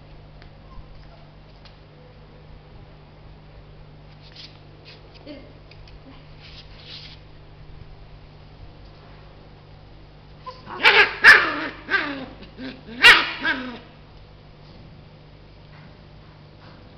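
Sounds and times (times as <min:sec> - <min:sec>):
puppy barking: 0:10.5 - 0:12.3, 0:12.9 - 0:13.8.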